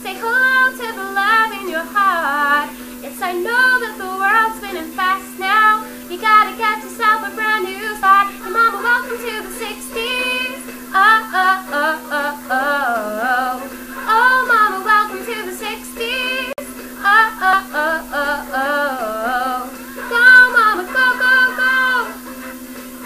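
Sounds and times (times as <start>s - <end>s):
woman singing: 0.0s - 22.3s
steady low hum: 0.0s - 23.0s.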